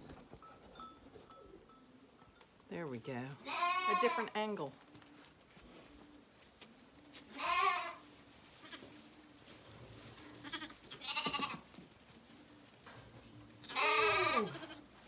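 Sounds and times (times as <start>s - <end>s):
lambs bleating: 3.4s - 4.3s, 7.3s - 8.0s, 10.4s - 11.7s, 13.6s - 14.9s.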